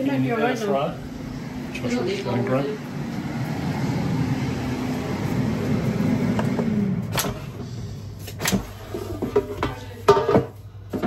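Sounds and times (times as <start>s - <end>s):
air fryer fan humming: 0.0s - 11.0s.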